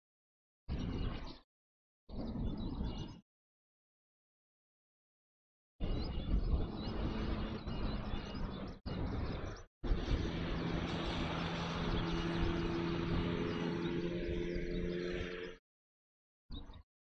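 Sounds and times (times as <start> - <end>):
small birds chirping: 0.7 - 1.4, 2.1 - 3.2, 5.8 - 15.6, 16.5 - 16.8
steady rumble: 5.8 - 15.5
low hum: 5.8 - 15.6.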